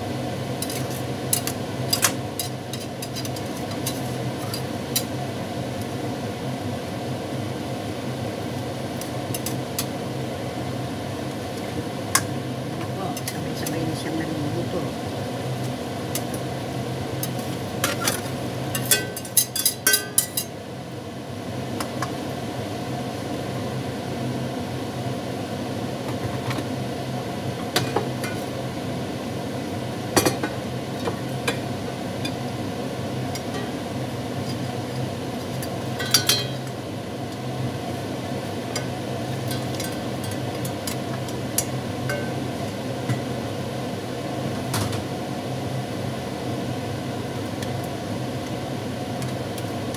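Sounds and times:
utensils clinking against pot: 0.6s - 5.1s, 12.2s - 13.8s, 17.2s - 20.5s, 30.2s - 31.6s, 33.4s - 33.8s, 36.0s - 36.7s, 38.8s - 42.5s.

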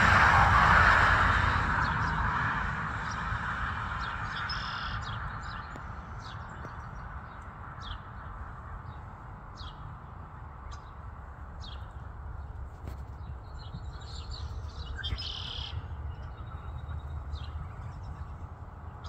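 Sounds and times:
low rumble: 0.0s - 7.1s.

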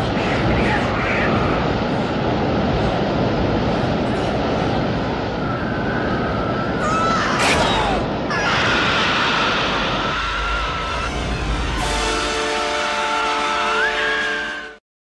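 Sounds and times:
rushing air roar: 0.0s - 14.8s
high whistling tone: 13.6s - 14.8s.

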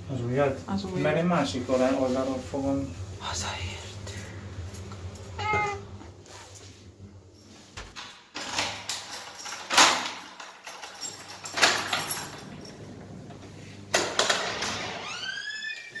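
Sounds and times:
cat meowing: 5.4s - 5.9s.

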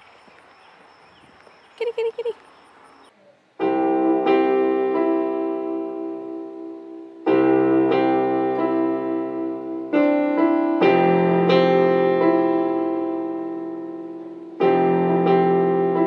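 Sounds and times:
piano chords on keyboard: 3.6s - 16.0s.

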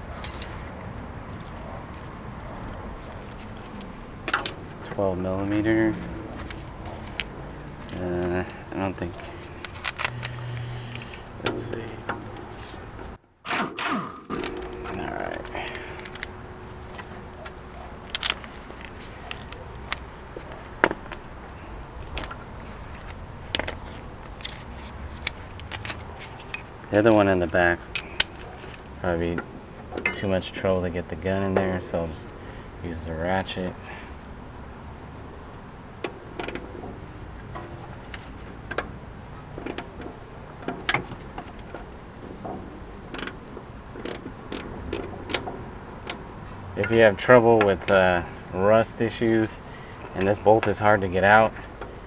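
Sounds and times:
metal clinks: 0.1s - 0.7s, 22.0s - 22.5s, 25.6s - 26.7s, 30.0s - 30.4s
ratchet clicks: 44.0s - 46.2s.

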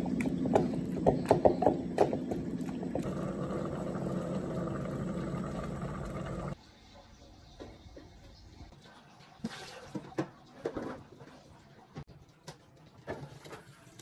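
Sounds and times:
pot bubbling: 0.0s - 6.6s
steady low hum: 0.0s - 6.6s.

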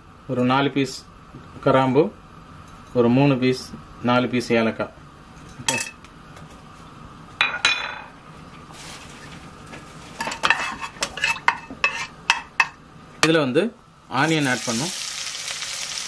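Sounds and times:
wooden spatula scraping metal pot: 10.2s - 12.2s
faint sizzle: 14.1s - 16.0s.

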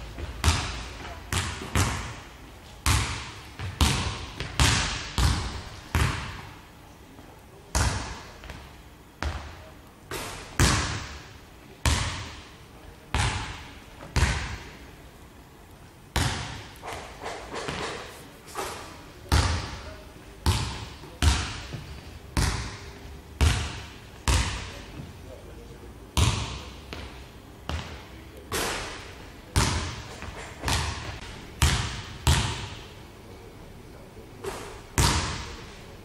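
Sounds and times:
basketball bouncing on wooden floor: 0.2s - 2.2s, 2.8s - 6.4s, 16.2s - 17.0s, 17.6s - 18.0s, 26.2s - 28.0s, 29.6s - 32.8s.

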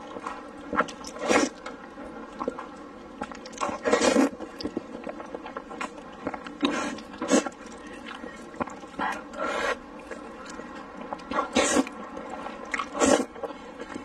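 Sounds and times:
soft chewing clicks: 0.0s - 14.0s
person slurping noodles: 1.1s - 1.6s, 3.6s - 4.4s, 6.5s - 7.6s, 11.3s - 12.0s, 12.7s - 13.4s.

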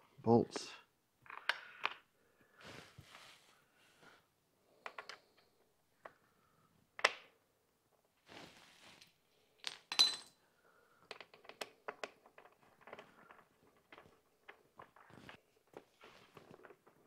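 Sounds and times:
metal bolts and tools clinking: 9.6s - 10.4s.

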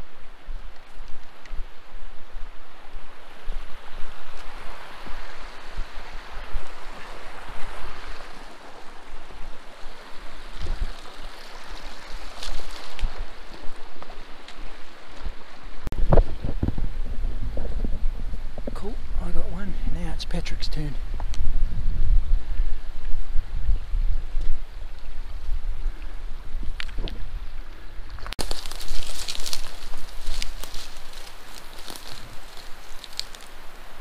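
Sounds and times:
stream rushing over rocks: 0.0s - 15.9s, 27.2s - 34.0s
wind buffeting microphone: 0.0s - 34.0s.

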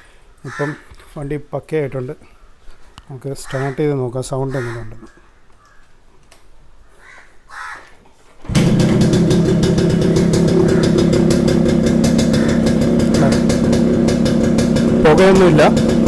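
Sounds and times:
motorcycle engine starting and running: 8.4s - 16.0s.

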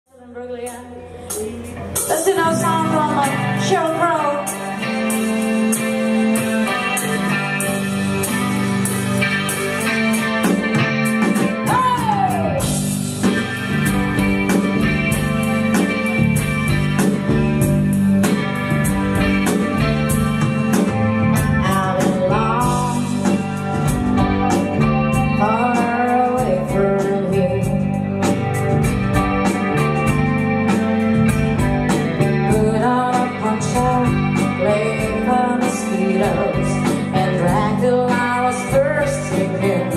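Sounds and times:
woman singing: 0.1s - 5.1s, 11.6s - 12.8s, 21.6s - 23.8s, 25.2s - 28.4s, 32.4s - 39.9s
live blues rock band: 0.2s - 39.9s
steady drum beat: 4.5s - 39.9s.

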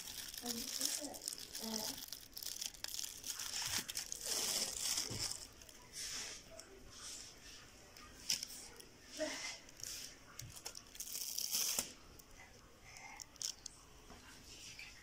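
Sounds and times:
foil crinkling: 0.0s - 5.9s, 9.8s - 12.2s.

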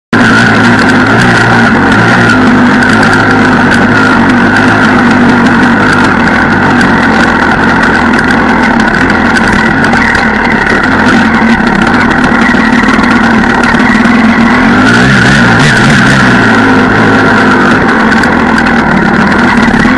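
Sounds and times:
motorcycle engine running: 0.1s - 19.9s.

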